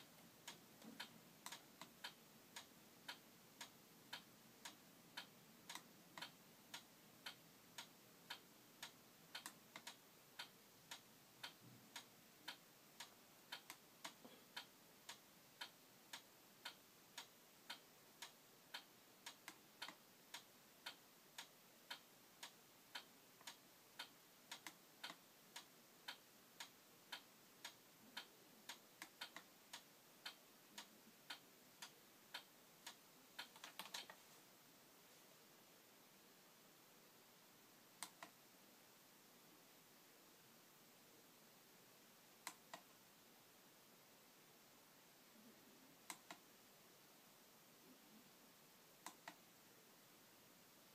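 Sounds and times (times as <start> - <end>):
faint even clicking: 46.0 - 46.4.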